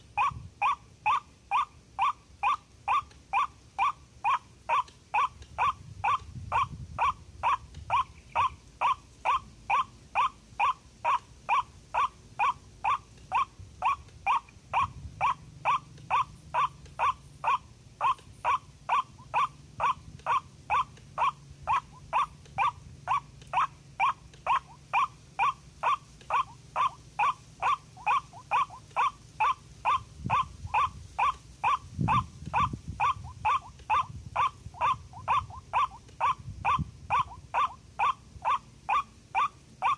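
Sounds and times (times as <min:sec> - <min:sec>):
waterhen harsh repeated call: 0:00.0 - 0:39.9.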